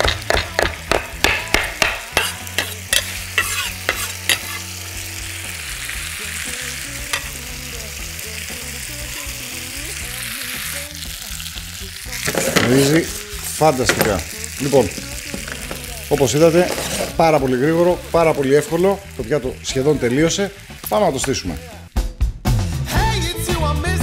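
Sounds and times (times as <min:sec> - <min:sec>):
knife chopping on wooden board: 0:00.0 - 0:02.7
frying pan sizzling: 0:00.0 - 0:21.9.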